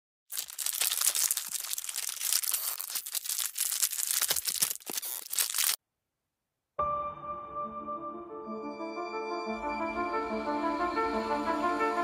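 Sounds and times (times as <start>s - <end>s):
paper tearing: 0.3s - 5.8s.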